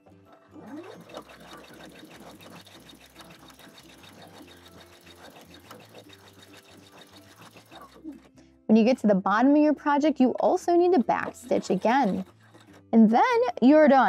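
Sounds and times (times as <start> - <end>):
sewing machine stitching: 0.3 - 8.3, 10.8 - 13.6.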